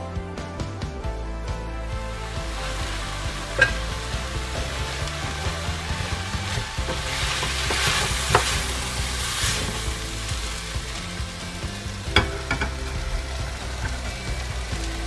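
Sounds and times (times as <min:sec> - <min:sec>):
onions sizzling in a pot: 0:02.1 - 0:15.0
wooden spoon scraping pot: 0:02.6 - 0:11.0.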